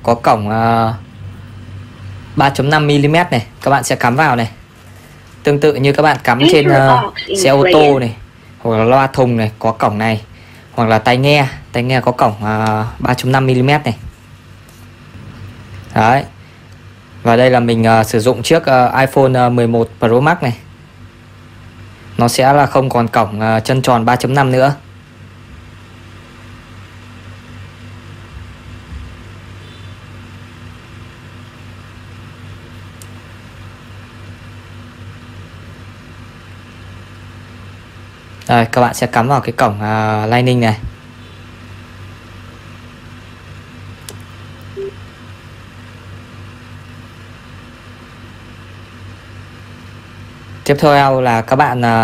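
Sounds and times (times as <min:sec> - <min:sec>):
low background hum with hiss: 0:00.0 - 0:52.0
faint high tone: 0:06.4 - 0:08.2, 0:44.7 - 0:45.0
short single beep: 0:44.8 - 0:45.0.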